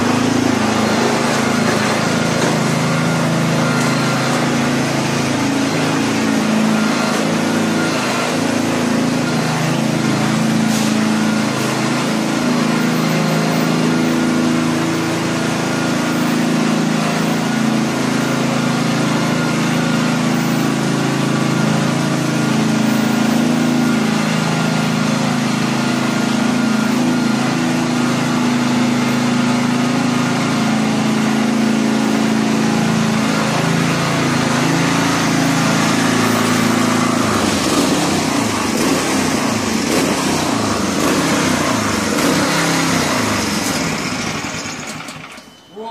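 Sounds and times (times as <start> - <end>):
harvester engine running: 0.0 - 45.5.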